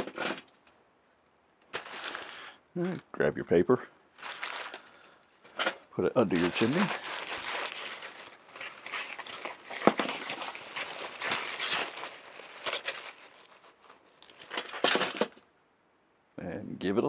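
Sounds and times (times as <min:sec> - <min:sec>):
paper crumpling: 0:01.7 - 0:03.0, 0:04.2 - 0:05.6, 0:06.2 - 0:15.4.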